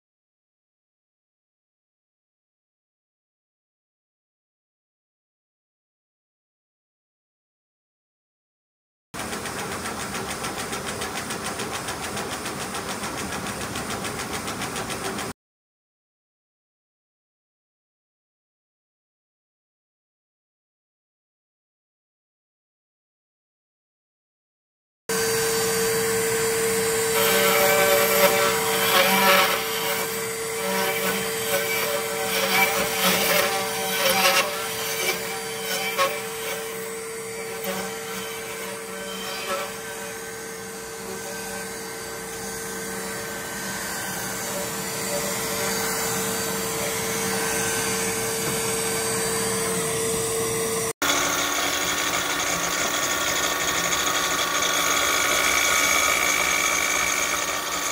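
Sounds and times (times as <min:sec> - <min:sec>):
power tool motor: 0:25.1 - 0:57.9
router cutting wood: 0:25.1 - 0:57.9.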